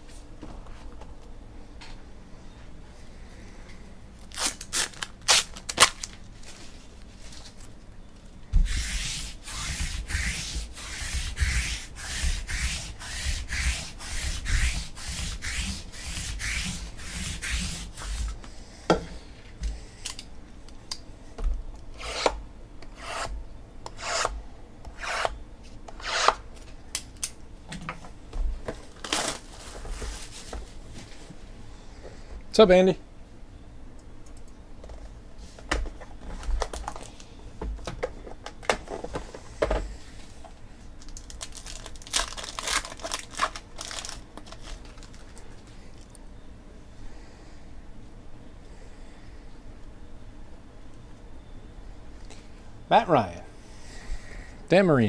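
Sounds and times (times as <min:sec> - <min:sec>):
hands rubbing and sliding: 0:08.6 - 0:18.5.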